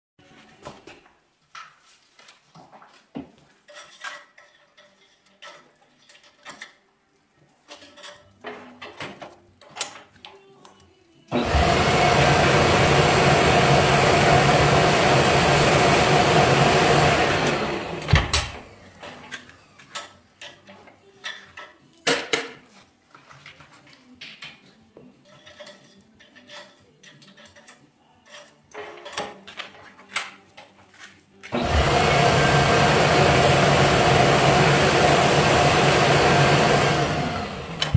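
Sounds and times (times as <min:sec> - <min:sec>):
lathe spinning with scratching: 0:11.4 - 0:19.2, 0:31.5 - 0:37.9.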